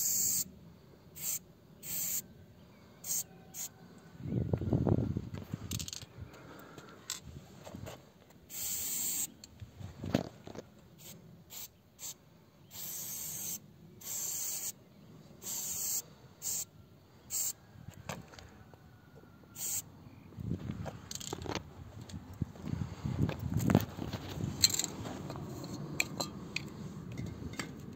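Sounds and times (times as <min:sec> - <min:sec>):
spray paint can hissing: 0:00.0 - 0:00.5, 0:01.2 - 0:02.2, 0:03.0 - 0:03.7, 0:08.5 - 0:09.3, 0:11.0 - 0:14.8, 0:15.4 - 0:16.7, 0:17.3 - 0:17.6, 0:19.6 - 0:19.8.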